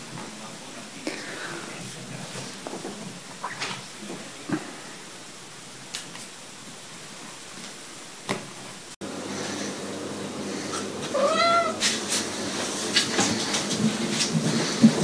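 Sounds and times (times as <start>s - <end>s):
cat meowing: 11.1s - 11.8s.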